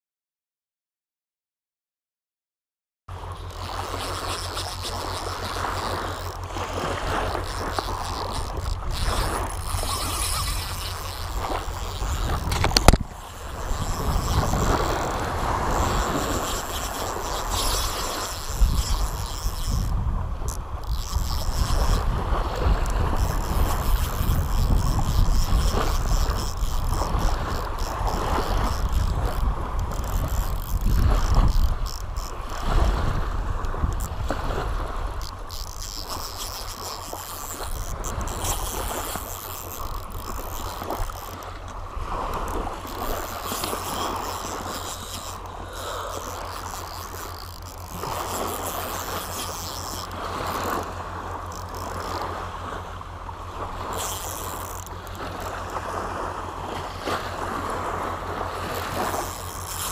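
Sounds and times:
fishing reel cranking: 3.1 - 59.9
small waves lapping on shore: 3.1 - 59.9
wind buffeting microphone: 5.2 - 52.7.

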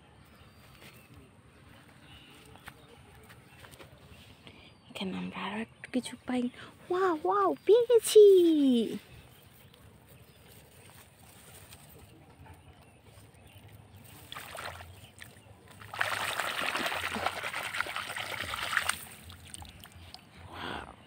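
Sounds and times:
hand sloshing in water: 14.1 - 20.0
water splashing and dripping: 14.1 - 20.3.

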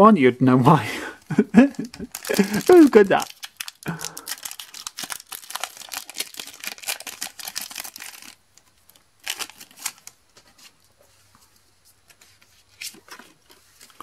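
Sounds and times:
foil wrapper crinkling and tearing: 1.6 - 10.2.

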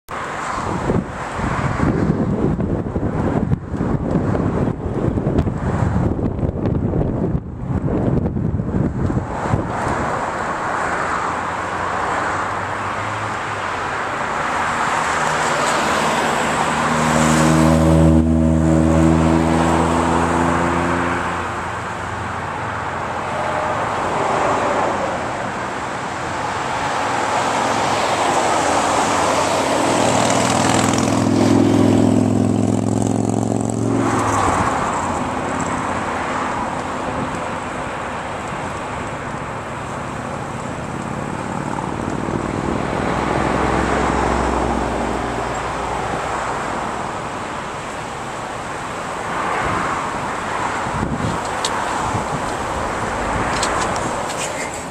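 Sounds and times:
road noise: 0.0 - 54.9
wind rushing past car window: 0.2 - 54.9.

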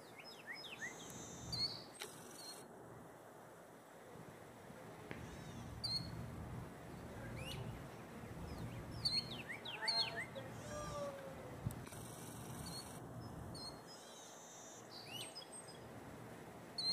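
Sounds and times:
birds chirping: 0.0 - 2.7, 5.1 - 15.9.

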